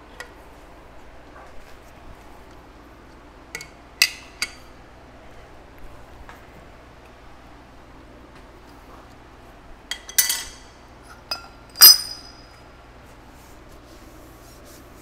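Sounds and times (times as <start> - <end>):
low steady hum: 0.0 - 15.0
steel tools clanking on iron: 9.9 - 12.5.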